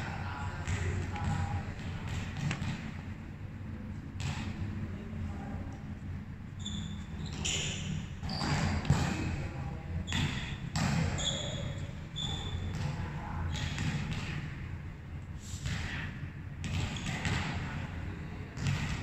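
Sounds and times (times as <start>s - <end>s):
steady low hum: 0.0s - 19.0s
volleyballs thudding on court floor: 0.5s - 3.1s, 8.2s - 9.5s, 10.1s - 11.2s, 12.7s - 14.6s, 15.6s - 17.8s, 18.5s - 19.0s
short high squeaks: 6.6s - 8.8s, 10.1s - 12.7s.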